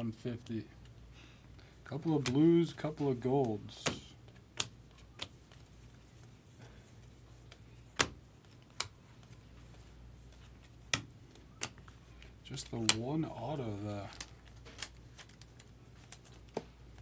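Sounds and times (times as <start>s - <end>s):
low steady hum: 0.0s - 17.0s
trading cards clicking: 3.4s - 5.6s.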